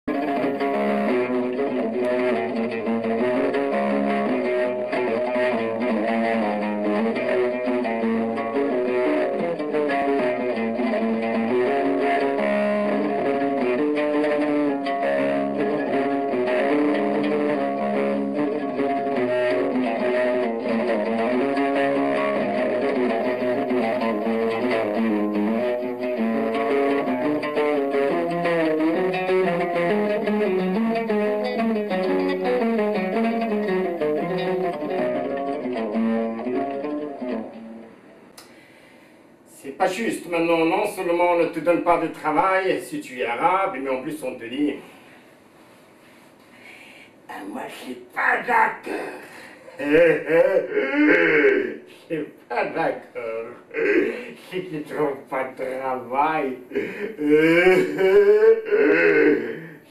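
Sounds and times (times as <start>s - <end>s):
oud plucked melody: 0.1s - 38.0s.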